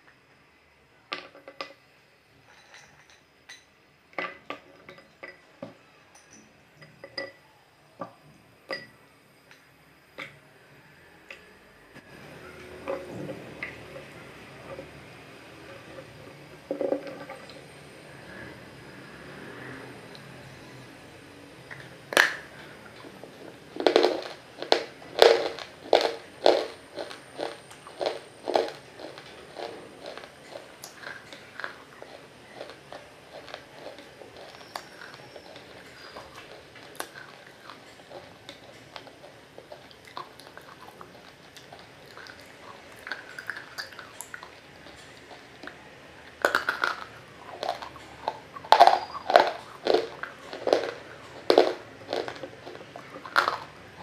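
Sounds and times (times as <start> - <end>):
hard chunks clinking in plastic bowl: 21.7 - 54.0
wet crunching of chewing: 21.7 - 54.0
food bitten with a crack: 23.8 - 54.0.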